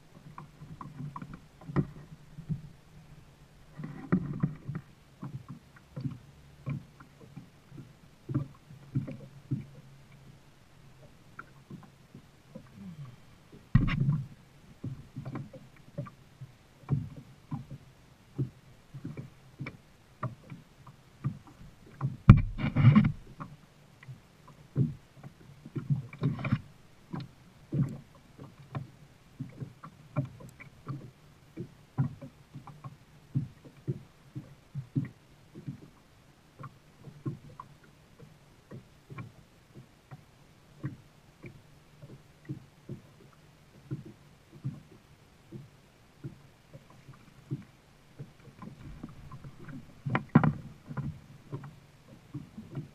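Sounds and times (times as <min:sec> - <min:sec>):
paddle knocking on kayak hull: 0:13.7 - 0:16.2, 0:21.2 - 0:23.5, 0:48.2 - 0:52.9
water splashing: 0:40.8 - 0:52.9.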